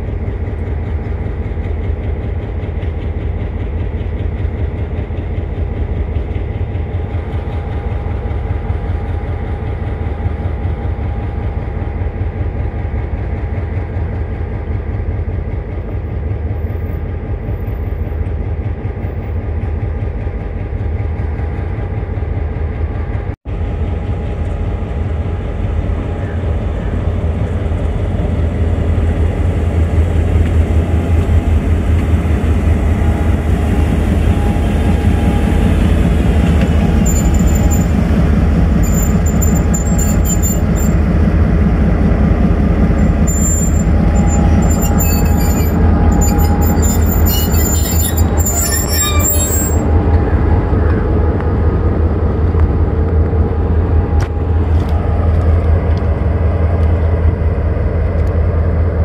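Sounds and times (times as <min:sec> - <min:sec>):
diesel locomotive drone: 0:00.0 - 0:59.0
steel wheels squealing on rails: 0:30.9 - 0:41.3, 0:42.4 - 0:51.2.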